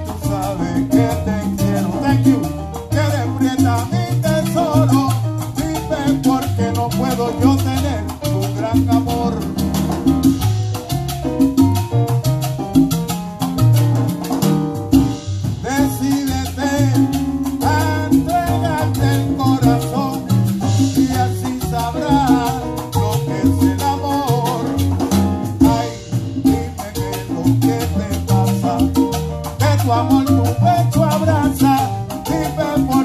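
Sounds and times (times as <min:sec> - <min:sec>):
man singing into microphone: 0:00.0 - 0:09.7, 0:15.6 - 0:25.0, 0:25.6 - 0:33.0
live salsa band playing: 0:00.0 - 0:33.0.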